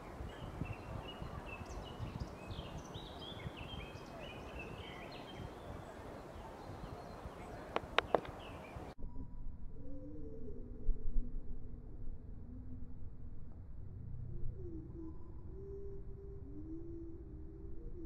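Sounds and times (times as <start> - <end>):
songbird singing: 0.0 - 10.5, 14.6 - 18.0
faint low tones: 0.0 - 18.0
sharp clicks: 7.7 - 8.4.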